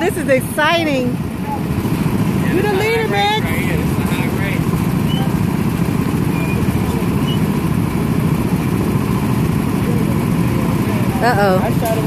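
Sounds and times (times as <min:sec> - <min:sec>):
go-kart engines running: 0:00.0 - 0:12.0.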